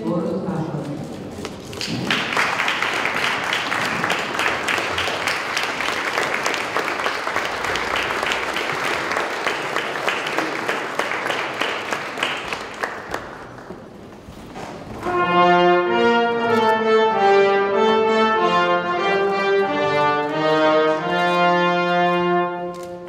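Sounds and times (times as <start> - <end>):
audience applauding: 1.6 - 14.0.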